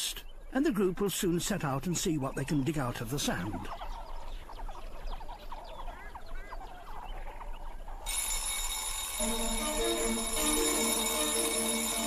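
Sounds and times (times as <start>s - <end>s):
meerkats chirping: 0.0s - 8.6s
steady ringing tones: 8.0s - 12.0s.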